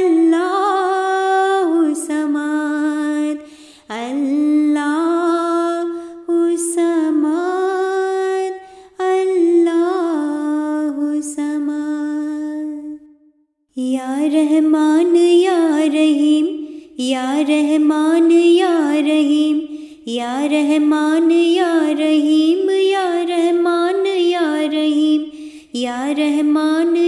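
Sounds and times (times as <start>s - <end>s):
high voice singing unaccompanied: 13.8s - 27.0s.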